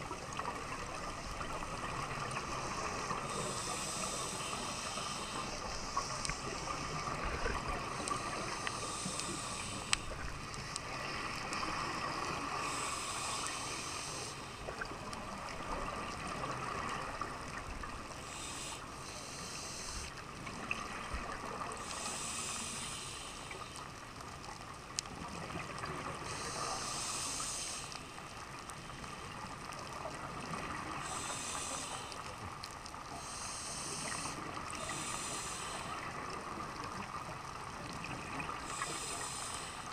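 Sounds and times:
regulator breathing hiss: 0.9 - 14.8, 18.1 - 20.3, 21.8 - 23.9, 26.2 - 28.2, 30.7 - 32.5, 33.1 - 37.3, 38.1 - 39.9.

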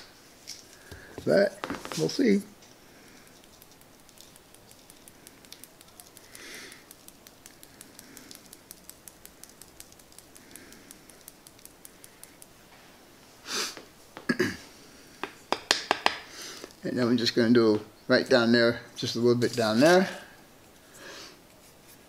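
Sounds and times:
soft breaths through nose: 0.0 - 1.3, 2.6 - 3.6, 6.2 - 9.6, 10.2 - 13.9, 20.2 - 22.0
plastic spoon tapping: 15.2 - 16.2.

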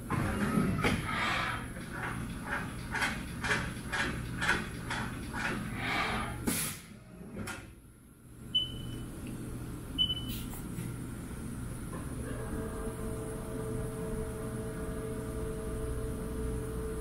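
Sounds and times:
machine hum: 10.9 - 17.0.

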